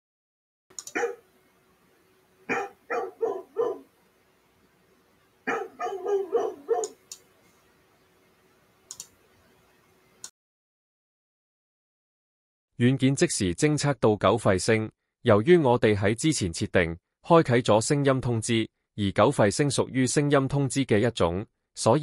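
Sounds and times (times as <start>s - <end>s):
recorded dog barking: 0.8s - 1.3s, 2.5s - 3.9s, 5.5s - 7.0s
faint steady hum: 0.8s - 10.3s.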